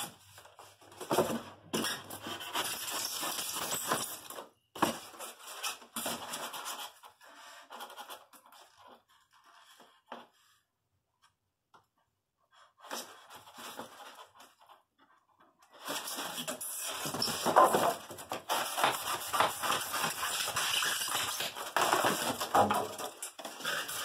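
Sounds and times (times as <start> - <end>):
styrofoam scraping cardboard box: 0.0 - 4.1, 4.8 - 10.4, 15.7 - 24.0.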